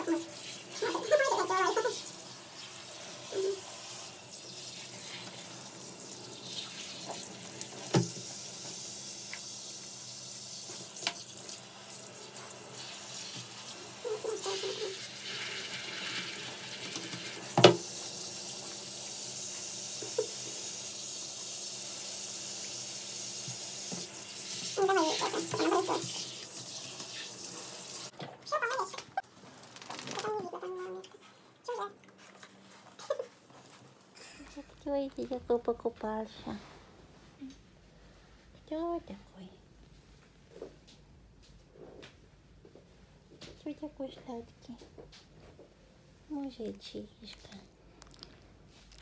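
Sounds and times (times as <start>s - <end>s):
shower spraying water: 0.0s - 28.1s.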